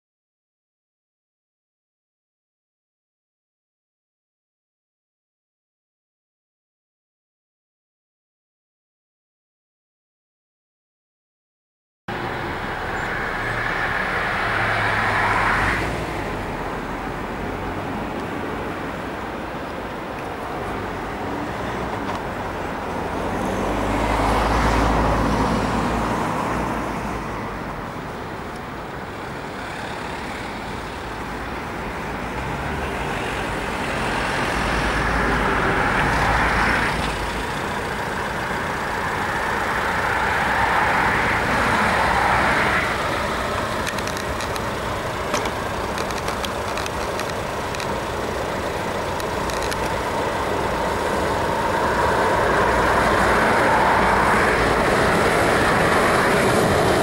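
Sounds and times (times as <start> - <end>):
cars passing: 12.1 - 57.0
steam train approaching: 47.0 - 57.0.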